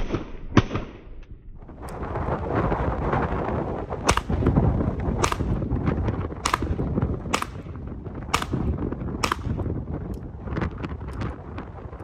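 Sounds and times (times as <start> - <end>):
pistol shots: 4.1 - 4.4, 5.2 - 5.6, 6.4 - 9.6.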